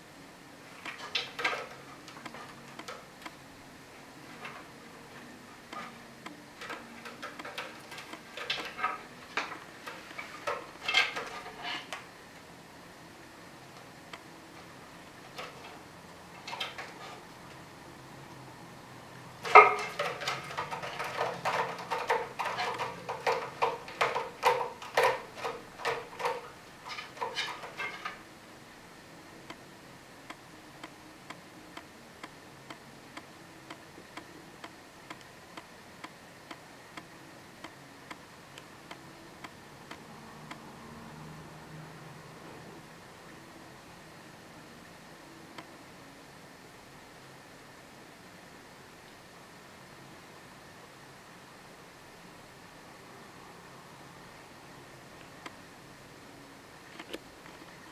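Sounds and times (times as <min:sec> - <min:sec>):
cat clawing a scratching post: 0:19.4 - 0:28.2.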